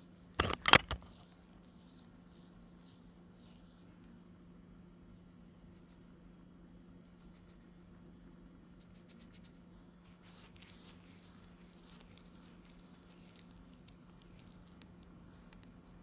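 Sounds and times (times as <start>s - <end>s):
hand rubbing spices into duck skin: 8.8s - 16.0s.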